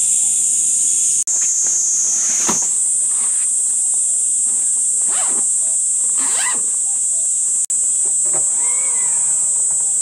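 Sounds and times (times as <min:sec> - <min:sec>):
insect chorus: 0:00.0 - 0:10.0
drawn-out animal call: 0:08.5 - 0:09.6.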